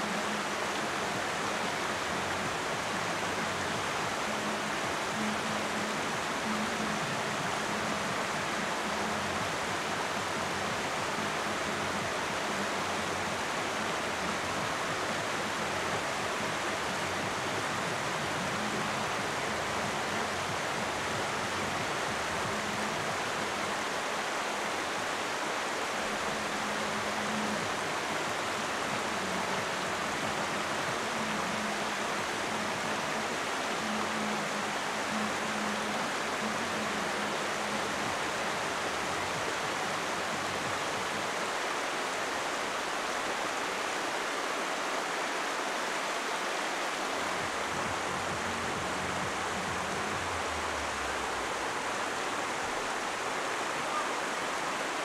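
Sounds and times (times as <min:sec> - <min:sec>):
stream running over boulders: 0:00.0 - 0:55.0.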